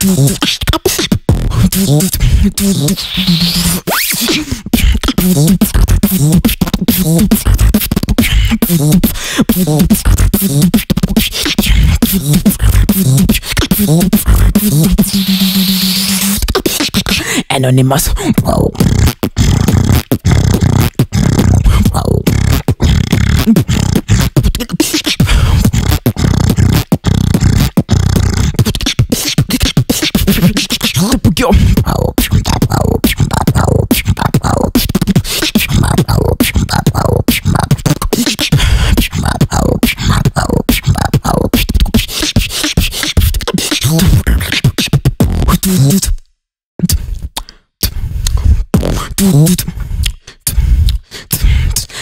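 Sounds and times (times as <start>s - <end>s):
person beatboxing: 0.0s - 52.0s.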